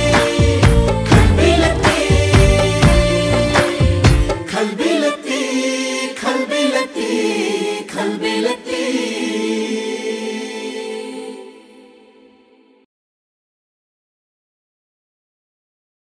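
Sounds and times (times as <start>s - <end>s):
sparse percussive hits: 0.0s - 4.6s
soundtrack music with singing voices: 0.0s - 12.9s.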